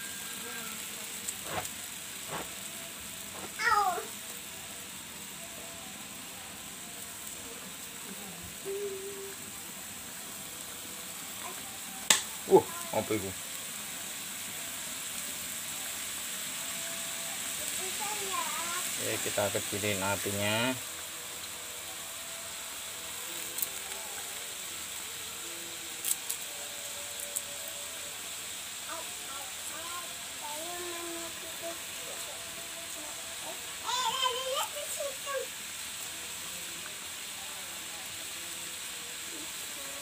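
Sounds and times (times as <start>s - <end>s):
sauce simmering and sizzling: 0.0s - 40.0s.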